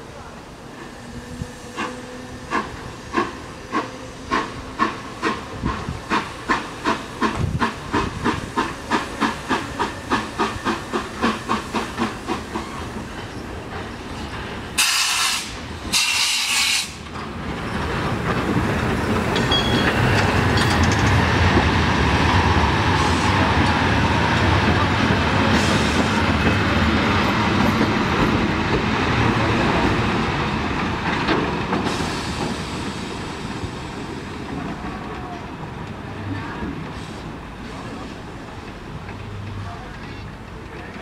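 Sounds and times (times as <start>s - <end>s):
train wheels rumbling and clattering: 0.7s - 41.0s
steam locomotive exhaust beats: 0.9s - 17.1s
steam hissing blasts: 14.1s - 17.0s, 31.8s - 34.4s.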